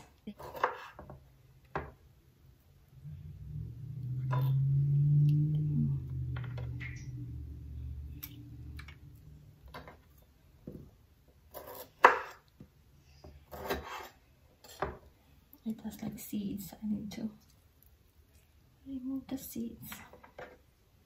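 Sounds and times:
low droning hum: 0:02.9 - 0:09.8.

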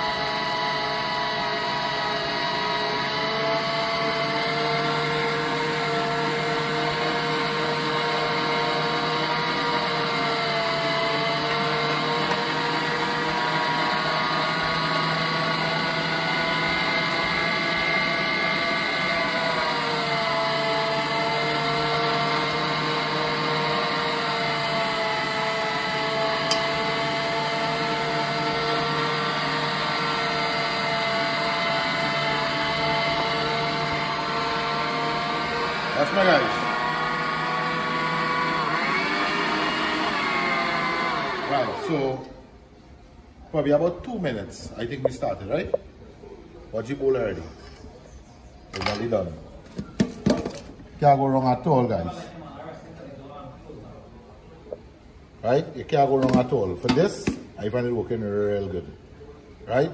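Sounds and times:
electric meat grinder whining: 0:00.0 - 0:42.3.

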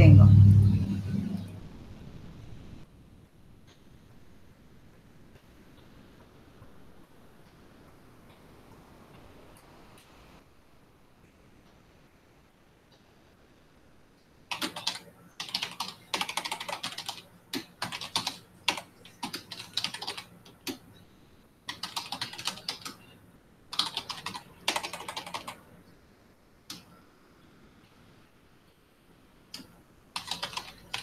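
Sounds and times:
typing on keyboard: 0:14.5 - 0:20.8, 0:21.7 - 0:23.1, 0:23.7 - 0:25.6, 0:29.6 - 0:31.0.

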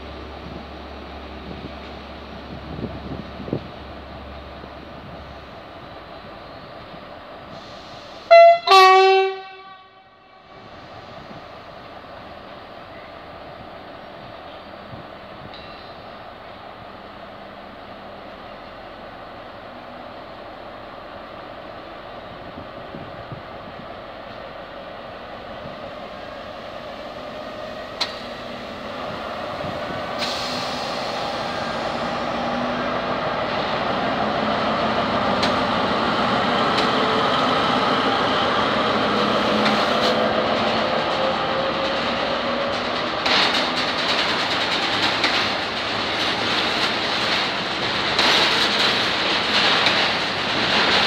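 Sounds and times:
wheels clicking over rail joints: 0:27.8 - 0:30.8, 0:34.5 - 0:51.0
wagons rolling on rails: 0:38.8 - 0:51.0.

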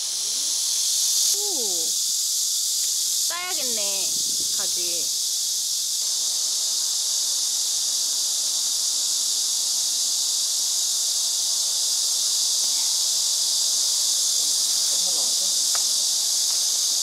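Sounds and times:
cicadas droning: 0:00.0 - 0:17.0.

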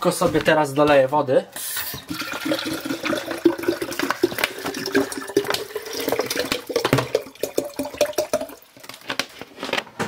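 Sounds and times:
water filling plastic bottle: 0:01.7 - 0:09.6.

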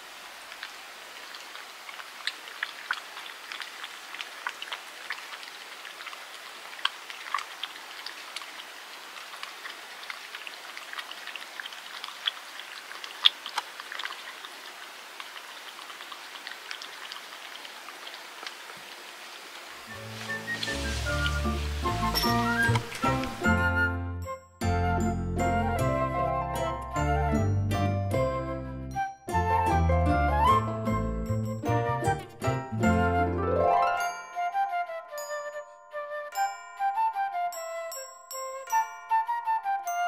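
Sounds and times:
cat chewing and lapping: 0:00.5 - 0:23.4.

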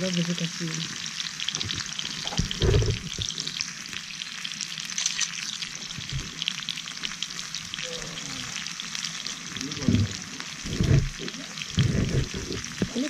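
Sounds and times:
meat sizzling in a frying pan: 0:00.0 - 0:13.0.

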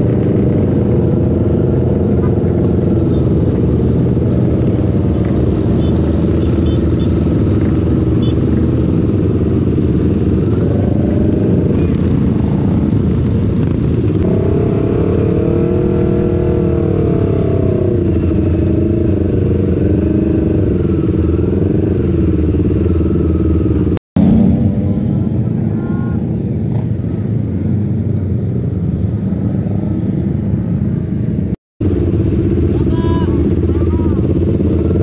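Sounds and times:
motorcycle engine rumbling: 0:00.0 - 0:35.0.

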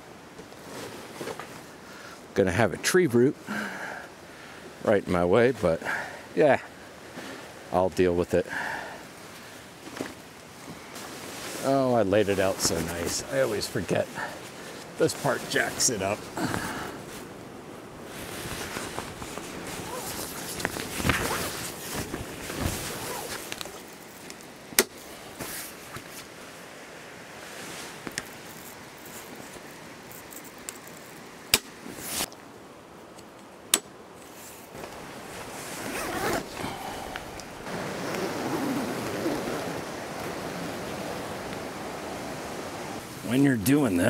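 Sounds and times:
canvas tent rustling and flapping: 0:00.3 - 0:01.8, 0:09.2 - 0:26.6, 0:34.3 - 0:44.0
zipper on canvas: 0:18.2 - 0:23.7, 0:35.6 - 0:36.8, 0:37.6 - 0:40.5.

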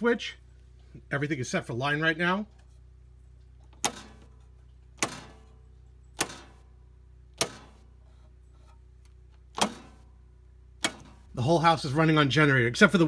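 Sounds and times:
faint low hum: 0:00.0 - 0:13.0
rocker switches clicking: 0:06.2 - 0:06.6, 0:07.4 - 0:07.8, 0:10.8 - 0:11.2.

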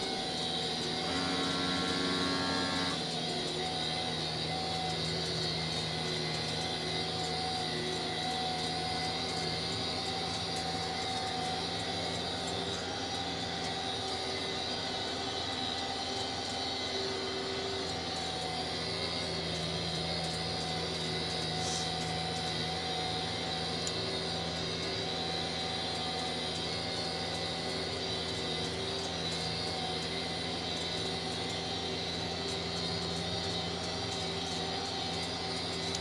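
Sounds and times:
tractor engine drone: 0:00.0 - 0:36.0.

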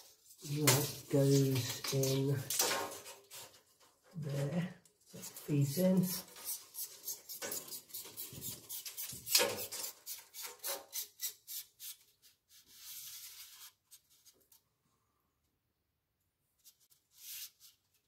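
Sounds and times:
steel strip scraping in a slot: 0:06.2 - 0:12.0.

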